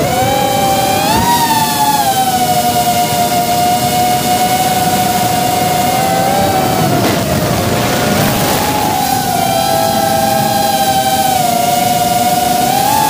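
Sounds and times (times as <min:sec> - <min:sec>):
drone motors whining: 0:00.0 - 0:13.0.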